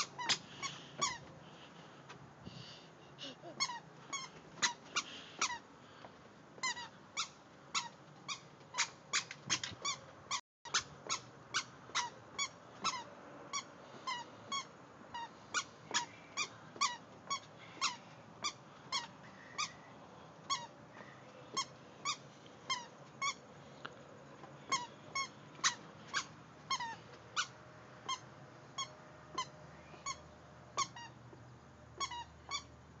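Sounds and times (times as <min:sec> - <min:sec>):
squeaky shoes squeaking: 0:00.0 - 0:01.3, 0:03.5 - 0:05.6, 0:06.6 - 0:10.1, 0:30.8 - 0:32.7.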